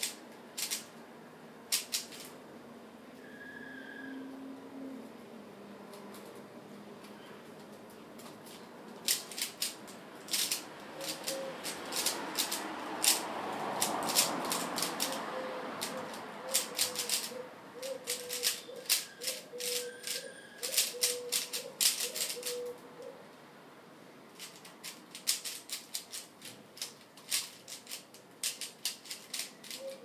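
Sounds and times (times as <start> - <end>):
puzzle cube plastic clicks: 0.0 - 0.9, 1.7 - 2.3, 8.9 - 13.2, 13.8 - 15.2, 15.8 - 17.3, 17.9 - 22.8, 24.4 - 30.0.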